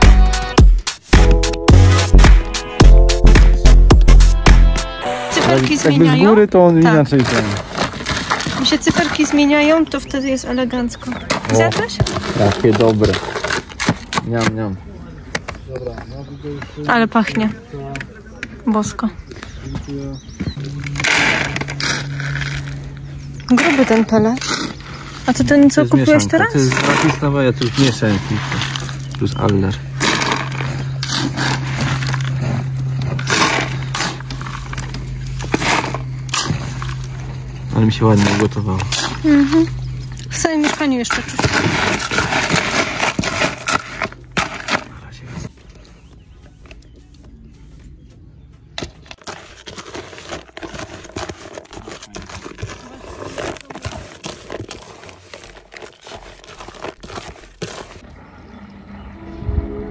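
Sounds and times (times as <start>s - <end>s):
steady low hum: 18.2s - 49.1s, 56.9s - 59.9s
grains scooped in plastic bucket: 49.2s - 58.0s.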